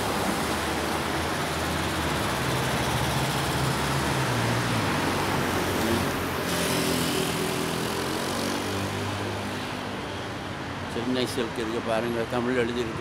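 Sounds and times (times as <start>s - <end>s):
vehicle accelerating: 0.0s - 9.2s.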